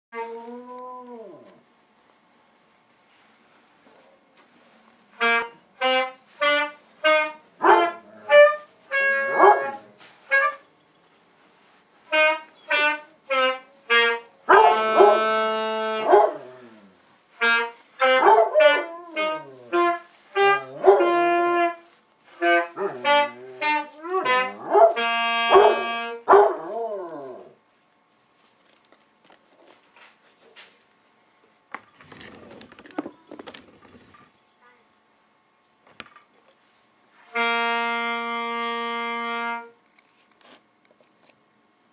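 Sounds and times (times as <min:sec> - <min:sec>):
saxophone playing: 0:05.1 - 0:10.6, 0:12.0 - 0:26.9, 0:37.2 - 0:39.8.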